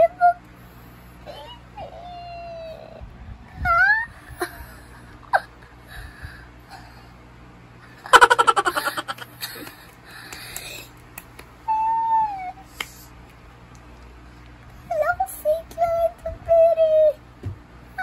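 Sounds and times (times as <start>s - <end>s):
girl laughing: 3.7s - 5.7s, 8.0s - 9.8s.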